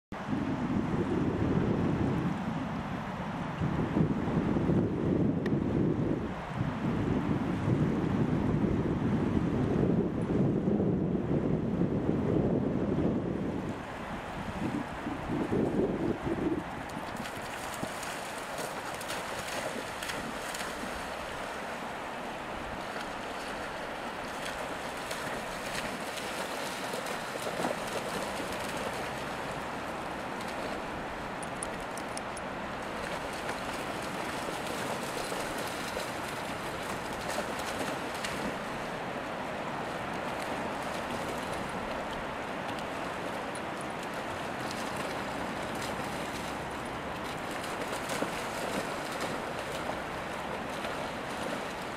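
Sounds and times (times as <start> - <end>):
wind: 0.1 - 51.9
surf rushing: 13.8 - 51.9
dogs splashing through water: 16.5 - 51.9.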